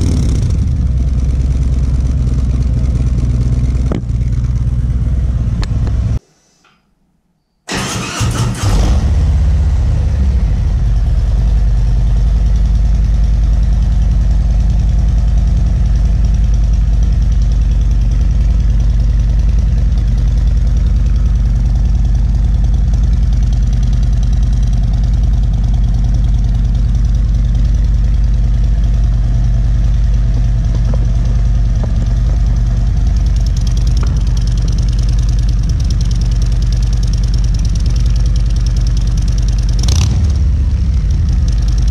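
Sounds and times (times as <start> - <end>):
motorcycle engine idling: 0.0 - 6.2, 9.2 - 41.9.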